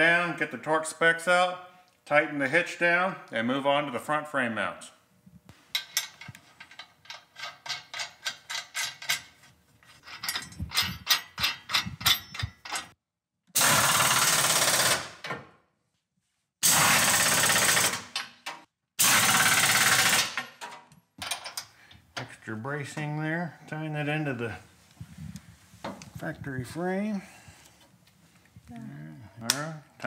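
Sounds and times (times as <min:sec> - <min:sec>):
pneumatic wrench bursts: 0:13.6 - 0:15.2, 0:16.6 - 0:18.2, 0:19.0 - 0:20.4
rapid clicking of bolts: 0:13.6 - 0:15.4, 0:16.8 - 0:21.6.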